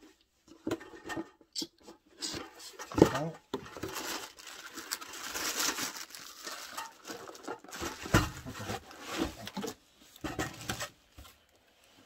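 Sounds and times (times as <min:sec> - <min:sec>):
cardboard and plastic rustling: 0:02.4 - 0:12.0.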